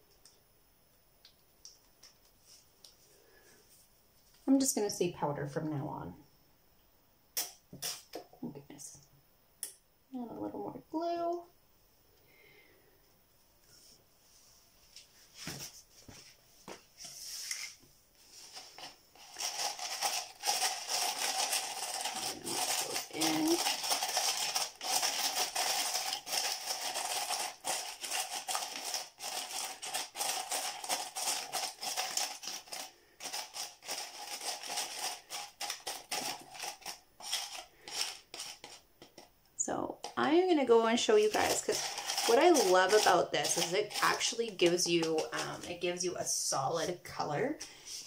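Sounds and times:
glass pieces scratching and clinking: 0:19.4 - 0:38.8.

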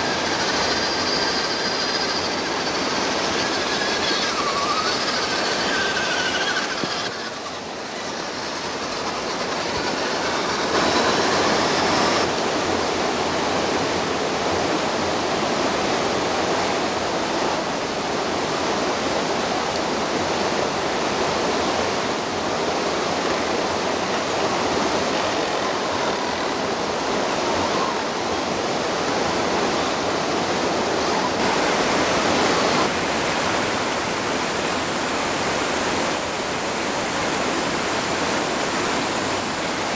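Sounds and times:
river water rushing over rocks: 0:00.0 - 0:39.9.

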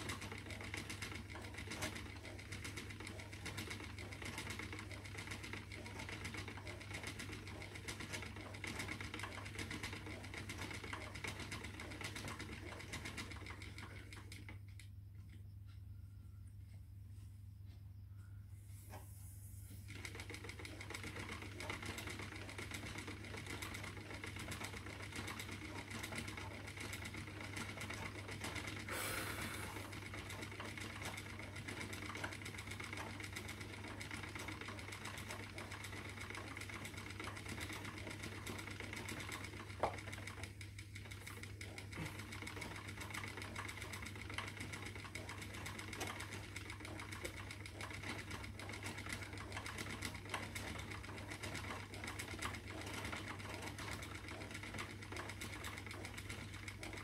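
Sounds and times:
spinning wheel ticking: 0:00.0 - 0:16.0, 0:19.9 - 0:57.0
steady low hum: 0:13.3 - 0:20.9.

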